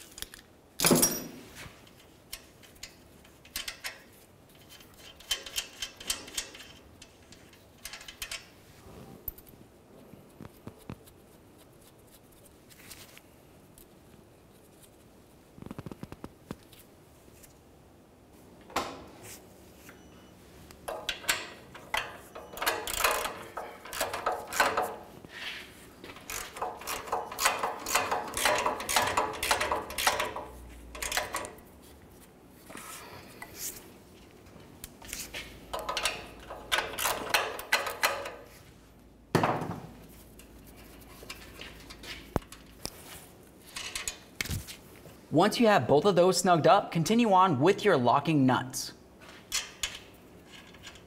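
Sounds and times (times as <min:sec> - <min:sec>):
metal tools clinking: 0:00.8 - 0:04.0
ratcheting wrench clicking: 0:04.6 - 0:08.5, 0:20.9 - 0:25.0, 0:26.0 - 0:31.6.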